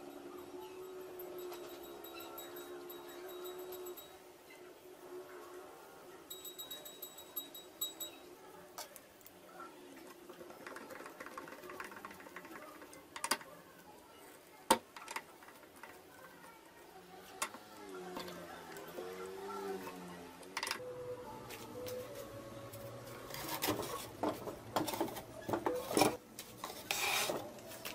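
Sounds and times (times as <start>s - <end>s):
wooden parts clicking and knocking: 10.0s - 13.5s, 14.7s - 16.1s, 20.5s - 20.8s.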